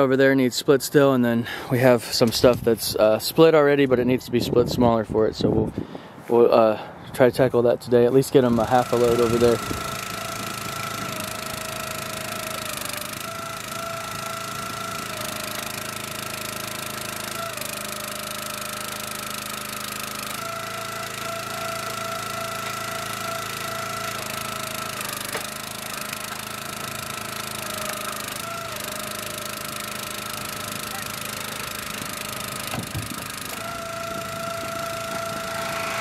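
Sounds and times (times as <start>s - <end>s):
small engine running steadily: 8.4s - 36.0s
firewood being split: 9.0s - 36.0s.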